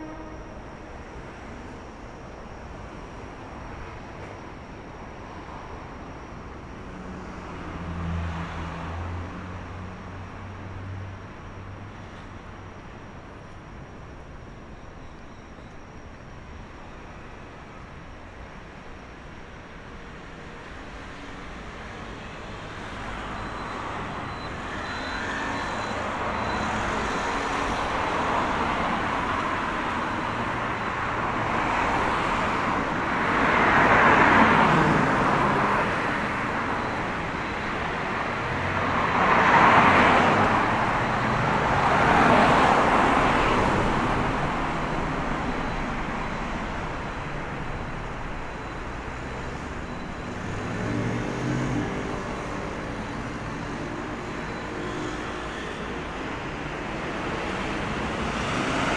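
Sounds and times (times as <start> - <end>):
steady traffic noise: 0.0 - 58.9
cars passing close: 20.7 - 58.9.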